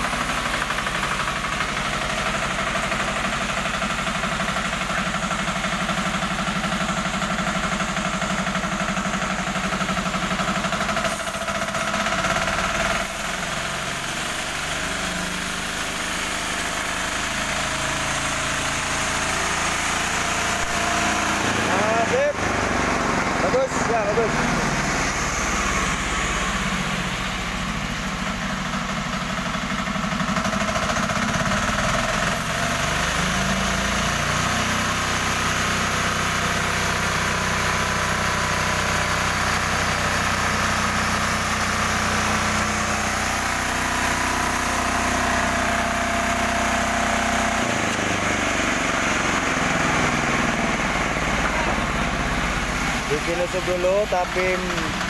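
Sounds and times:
sawmill engine running: 0:00.0 - 0:55.0
saw blade cutting log: 0:10.5 - 0:25.0, 0:32.2 - 0:35.5.

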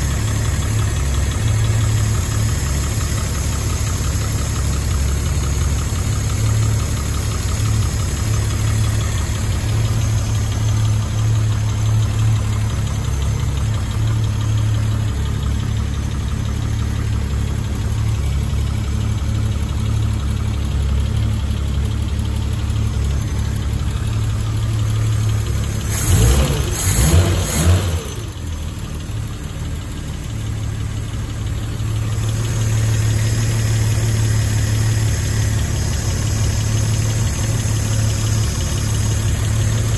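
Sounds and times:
car engine idling: 0:00.0 - 0:39.9.

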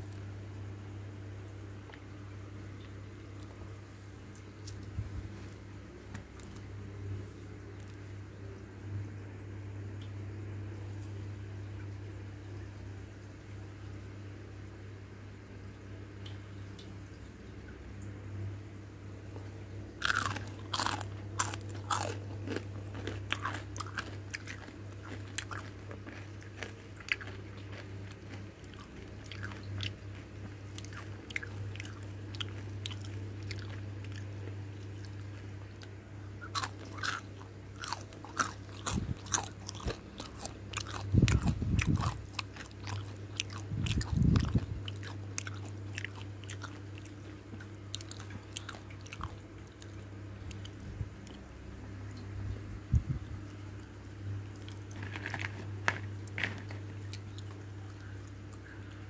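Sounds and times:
steady low hum: 0:00.0 - 0:59.0
crunching and chewing crispy food: 0:04.3 - 0:06.8, 0:19.4 - 0:51.5, 0:54.5 - 0:59.0.

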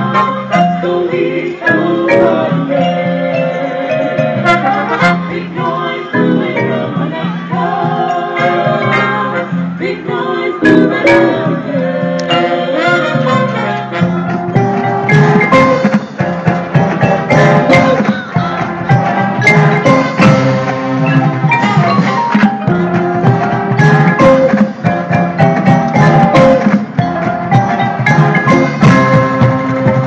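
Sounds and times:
marimbas playing quick notes: 0:00.0 - 0:09.5, 0:10.6 - 0:30.0
sharp drum strikes: 0:14.5 - 0:30.0.

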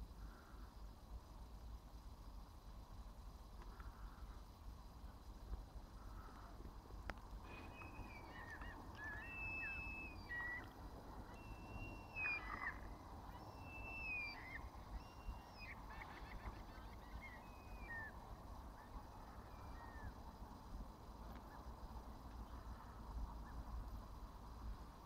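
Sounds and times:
gulls calling: 0:07.4 - 0:20.2.

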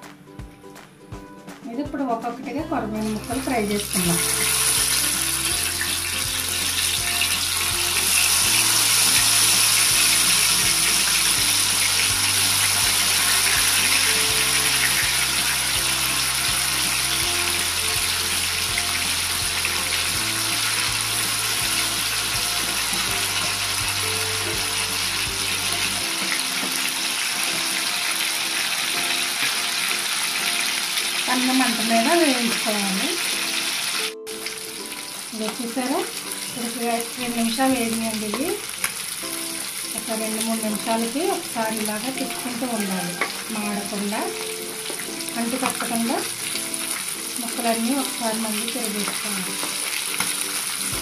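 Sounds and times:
background music with bass line: 0:00.0 - 0:28.0, 0:49.5 - 0:51.0
fish frying in hot oil: 0:03.1 - 0:51.0.

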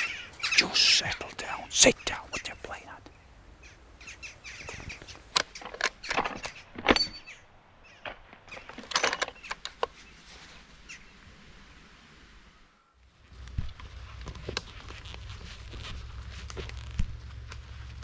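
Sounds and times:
rifle handling clicks and knocks: 0:04.7 - 0:07.3, 0:08.0 - 0:10.0.

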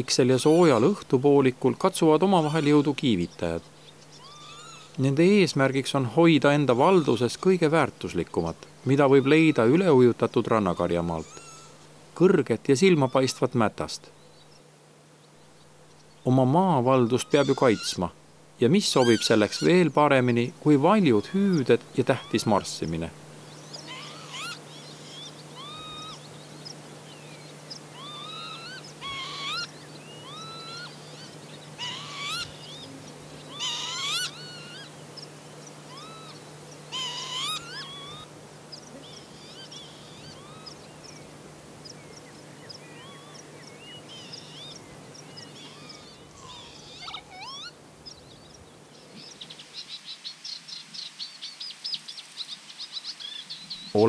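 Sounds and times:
lapwings calling: 0:00.0 - 0:14.7, 0:15.4 - 0:54.0
birds twittering: 0:00.0 - 0:54.0.

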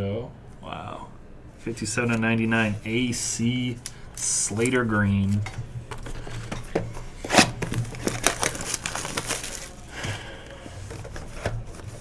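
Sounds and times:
shrink-wrap crinkling: 0:07.2 - 0:11.0.

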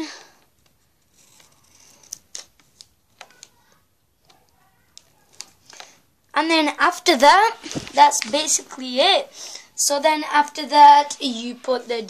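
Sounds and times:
pencil scratching on paper: 0:01.0 - 0:02.1.

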